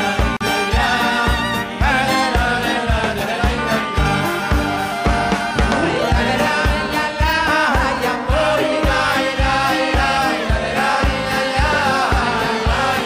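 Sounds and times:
drum kit steady beat: 0:00.0 - 0:13.0
keyboard and guitar: 0:00.0 - 0:13.0
clarinet and violin melody: 0:04.0 - 0:07.4.

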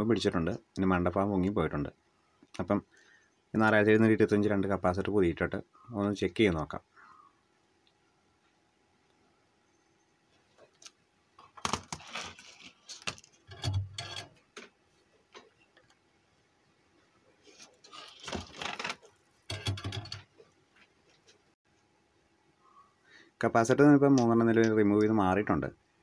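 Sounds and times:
circuit board parts clattering: 0:11.4 - 0:14.7, 0:17.6 - 0:20.4.

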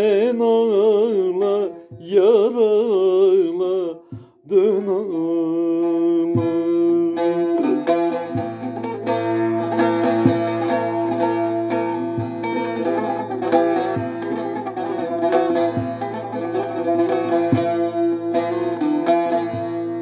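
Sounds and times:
long-necked lute plucked melody: 0:00.0 - 0:20.0.

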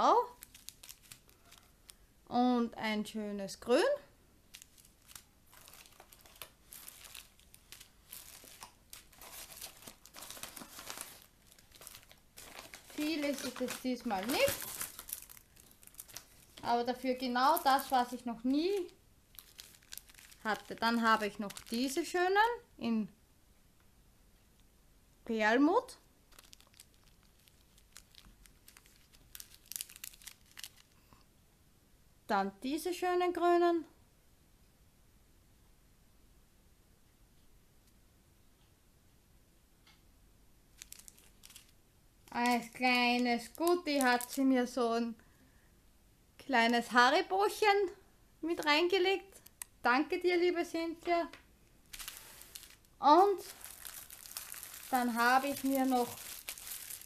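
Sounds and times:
plastic packaging crinkling: 0:00.2 - 0:02.0, 0:04.5 - 0:22.4, 0:26.3 - 0:31.1, 0:40.8 - 0:44.5, 0:51.8 - 0:57.0.

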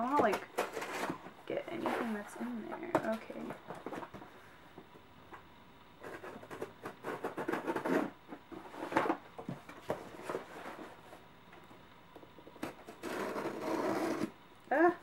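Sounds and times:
blade cutting cardboard box: 0:06.0 - 0:08.2, 0:12.6 - 0:14.4.

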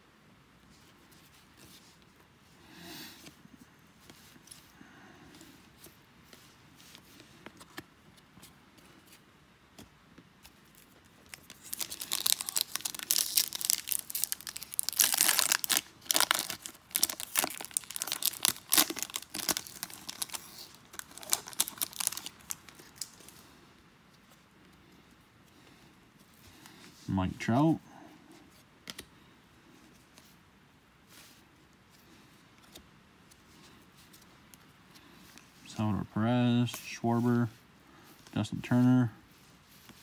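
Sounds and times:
foil wrapper tearing and crinkling: 0:10.6 - 0:23.4.

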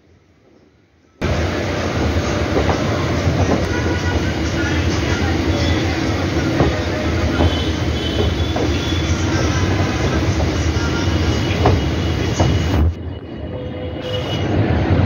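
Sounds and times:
wheels clacking over rail joints: 0:01.2 - 0:13.0
train wheels rumbling on track: 0:01.2 - 0:15.0.

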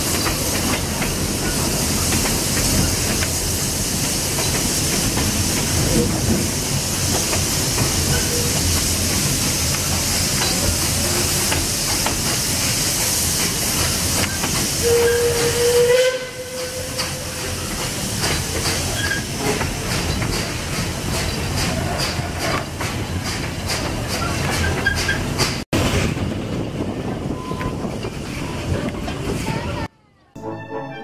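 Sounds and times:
train wheels clicking over rail joints: 0:00.0 - 0:15.7, 0:16.5 - 0:26.2
loud steam hiss: 0:00.0 - 0:24.5
steam whistle: 0:14.8 - 0:17.4.

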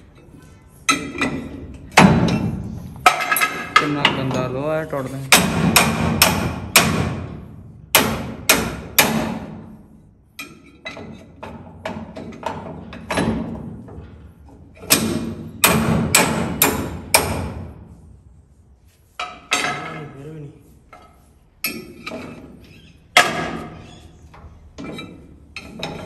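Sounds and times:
hammer striking iron: 0:05.3 - 0:09.6, 0:14.8 - 0:17.6.

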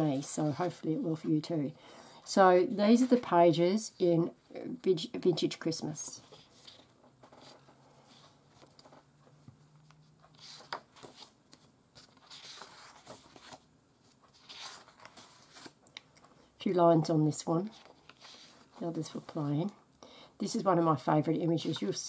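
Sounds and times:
paper sheets rustling: 0:06.2 - 0:09.5, 0:10.2 - 0:15.8.

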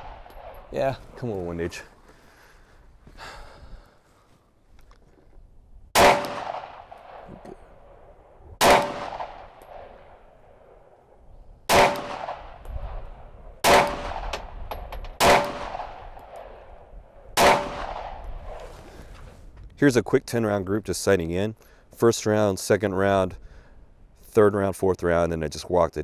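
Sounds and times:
pistol shots with ringing echo: 0:06.0 - 0:10.8, 0:11.7 - 0:18.2.

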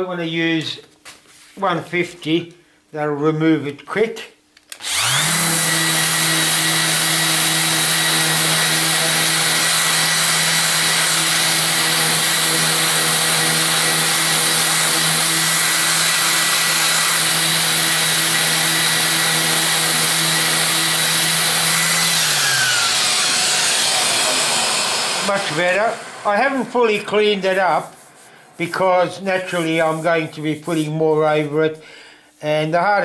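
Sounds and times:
sander motor winding down: 0:04.8 - 0:27.5
orbital sander running: 0:04.8 - 0:28.6.

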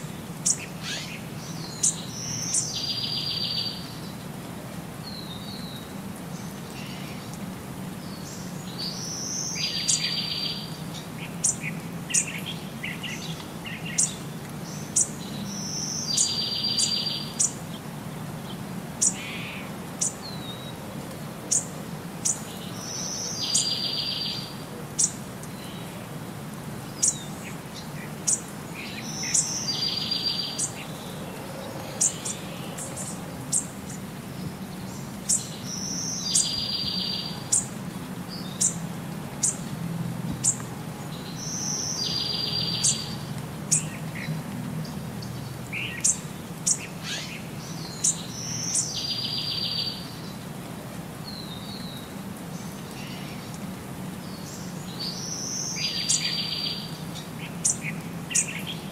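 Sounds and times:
songbird chirps: 0:00.0 - 0:58.9.

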